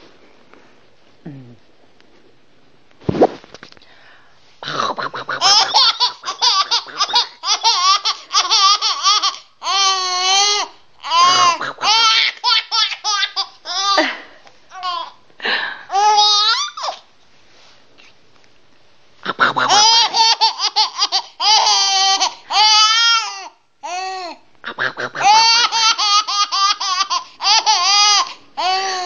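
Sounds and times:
baby laughing and squealing: 0:05.4 - 0:14.1, 0:15.9 - 0:17.1, 0:19.7 - 0:24.4, 0:25.2 - 0:29.0.

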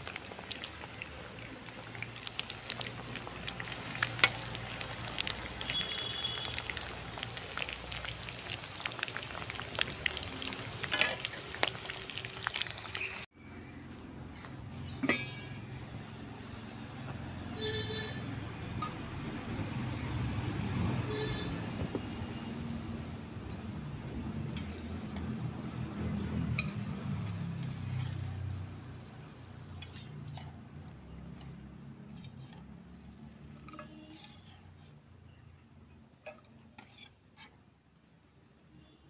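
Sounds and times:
pot lids and pans clinking: 0:10.8 - 0:11.4, 0:14.9 - 0:15.6.

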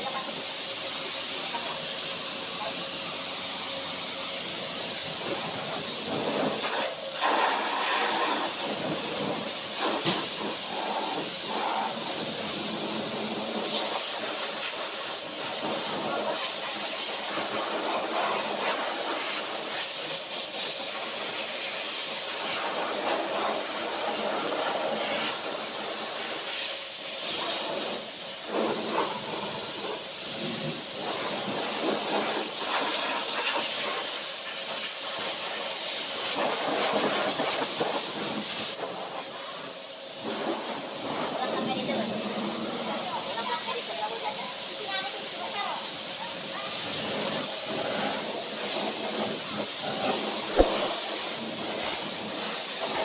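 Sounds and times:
pressure washer spraying water: 0:00.0 - 0:53.0.

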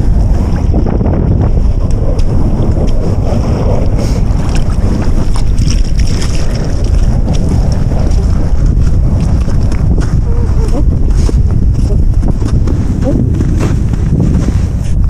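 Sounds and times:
wind buffeting microphone: 0:00.0 - 0:15.0
footsteps on wet gravel: 0:01.6 - 0:15.0.

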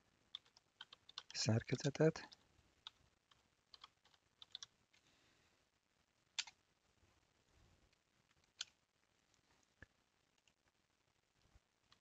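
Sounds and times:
faint room hiss: 0:00.0 - 0:12.0
computer mouse clicking: 0:00.3 - 0:01.4, 0:02.3 - 0:05.0, 0:06.4 - 0:06.6, 0:08.4 - 0:08.8.

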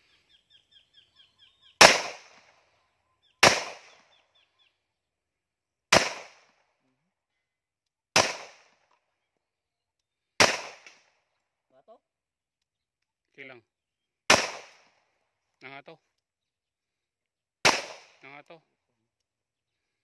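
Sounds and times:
pistol shots: 0:01.8 - 0:02.6, 0:03.4 - 0:04.1, 0:05.9 - 0:06.6, 0:08.1 - 0:08.8, 0:10.4 - 0:11.1, 0:14.3 - 0:15.0, 0:17.6 - 0:18.2.

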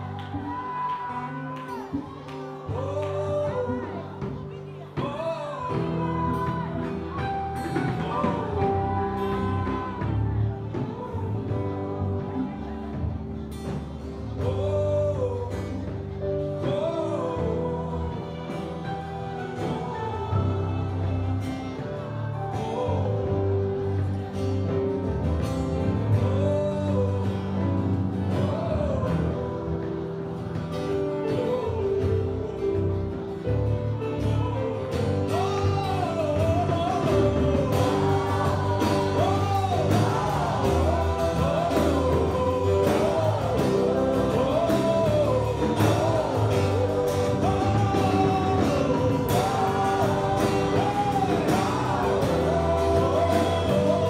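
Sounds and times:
drumming: 0:00.0 - 0:54.0
gospel band playing: 0:00.0 - 0:54.0
person singing: 0:00.0 - 0:54.0.

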